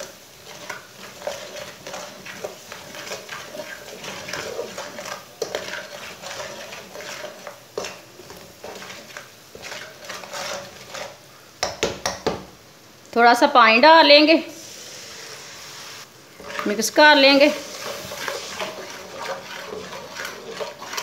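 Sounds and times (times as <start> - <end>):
metal spatula scraping a pan: 0.0 - 11.4, 14.5 - 21.0
light sizzle: 0.0 - 21.0.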